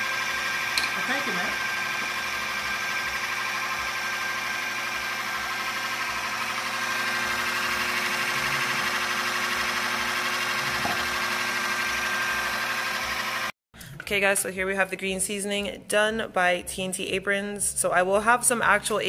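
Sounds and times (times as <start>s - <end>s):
small electric motor whirring: 0.0s - 13.5s.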